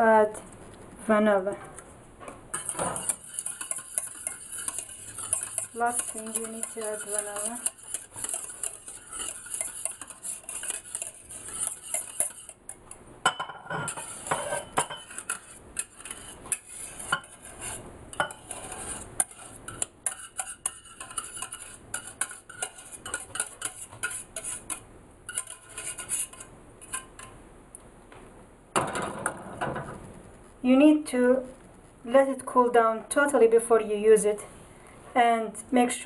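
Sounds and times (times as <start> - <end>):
whisk clinking and scraping: 2.5 - 27.3.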